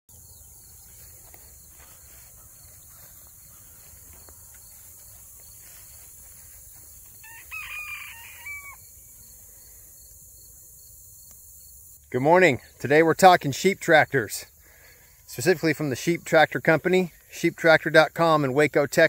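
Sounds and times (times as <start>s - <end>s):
rooster crowing: 7.2s - 9.0s.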